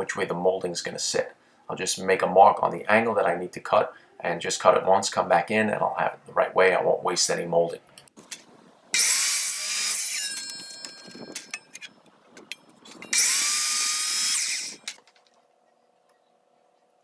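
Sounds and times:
miter saw cutting wood: 9.0s - 10.3s, 13.1s - 15.0s
saw blade ringing spinning down: 9.0s - 11.4s, 13.0s - 14.9s.

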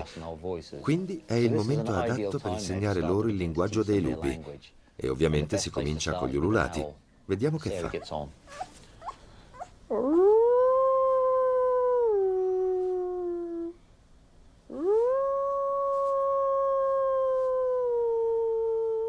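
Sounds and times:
wolf cub howling: 9.9s - 13.8s, 14.7s - 19.0s.

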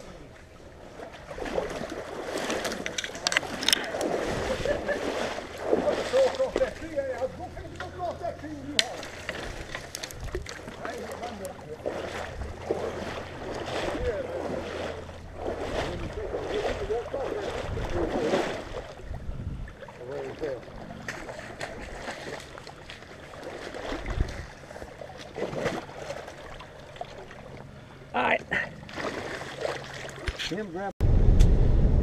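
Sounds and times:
person wading through water: 0.0s - 30.6s.

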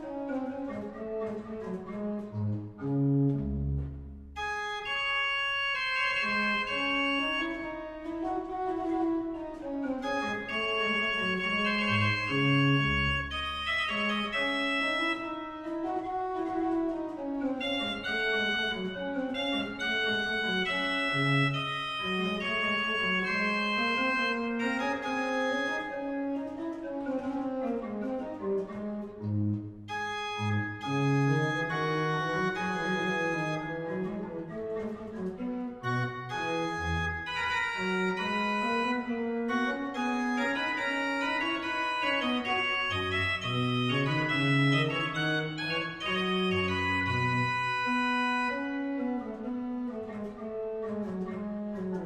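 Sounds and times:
pipe organ playing: 0.2s - 26.6s, 27.2s - 52.0s.

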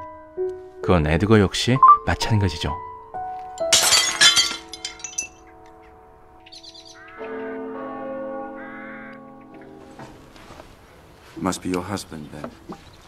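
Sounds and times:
faint birdsong: 5.2s - 13.0s.

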